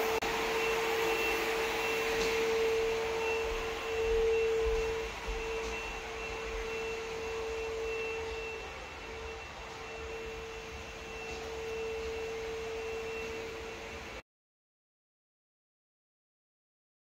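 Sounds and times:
steady mid-pitched hum: 0.0s - 14.1s
faint high tone: 0.5s - 13.5s.

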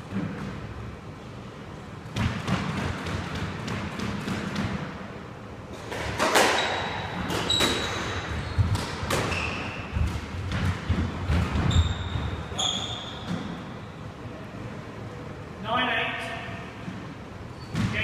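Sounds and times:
squash ball hits: 2.1s - 5.0s, 5.7s - 13.7s
court shoes squeaking: 5.7s - 14.0s, 17.5s - 18.0s.

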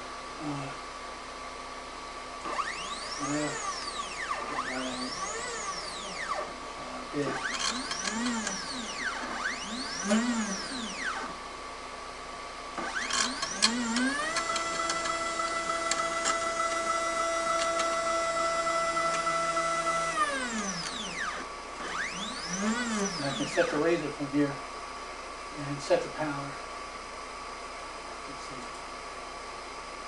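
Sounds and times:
stepper motor whine: 2.4s - 11.6s, 12.7s - 24.5s.

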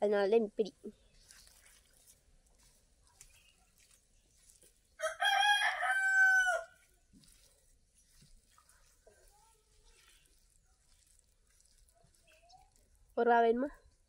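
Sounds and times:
rooster crowing: 5.0s - 6.8s.

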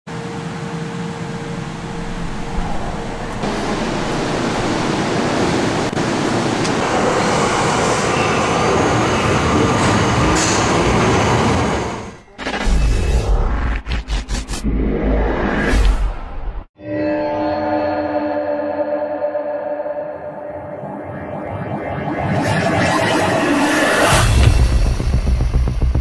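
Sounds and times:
underground train noise: 0.1s - 13.3s.

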